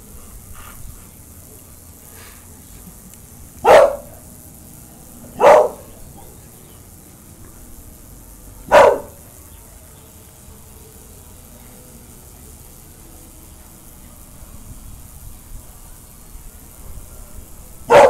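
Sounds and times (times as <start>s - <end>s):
dog barking: 3.6s - 4.2s, 5.3s - 6.3s, 8.6s - 9.2s.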